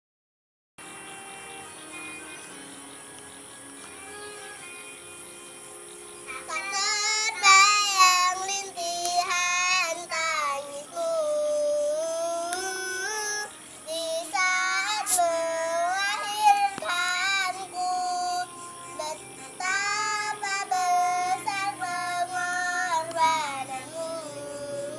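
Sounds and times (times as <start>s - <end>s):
girl singing: 6.3s - 24.9s.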